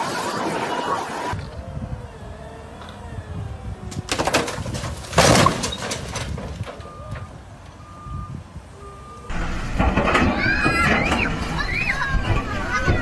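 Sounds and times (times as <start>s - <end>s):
stack crashing onto trailer: 4.1s - 7.3s, 9.3s - 13.0s
reversing alarm beeping: 6.8s - 9.7s.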